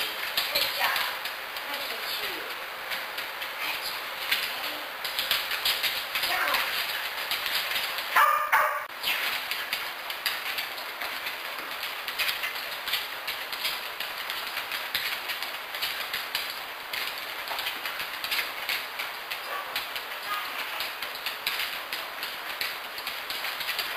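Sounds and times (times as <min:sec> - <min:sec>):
dog barking: 0:08.2 - 0:08.9, 0:19.4 - 0:20.6.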